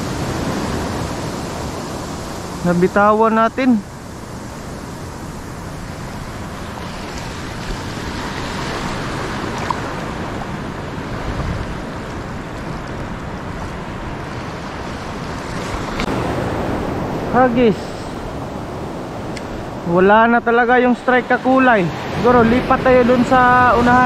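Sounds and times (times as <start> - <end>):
sea waves: 0.0 - 24.0
wind noise on microphone: 4.0 - 20.0, 22.0 - 24.0.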